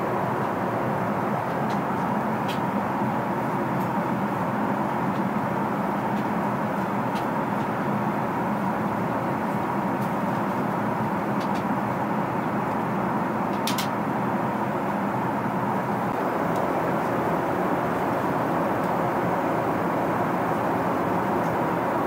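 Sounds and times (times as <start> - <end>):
airplane cabin roar: 0.0 - 22.0
faint hum: 15.9 - 22.0.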